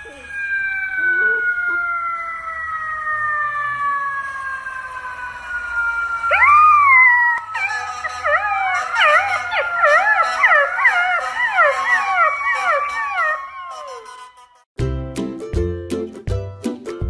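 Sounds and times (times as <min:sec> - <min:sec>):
steady falling siren-like tone: 0:00.0 - 0:14.7
puppy howling: 0:00.1 - 0:02.1, 0:06.3 - 0:14.1.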